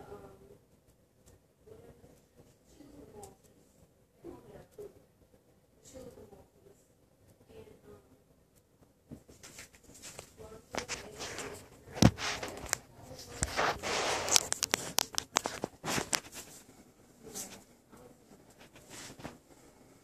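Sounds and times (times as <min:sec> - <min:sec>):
scraping and rubbing: 0:09.2 - 0:17.7, 0:18.3 - 0:19.4.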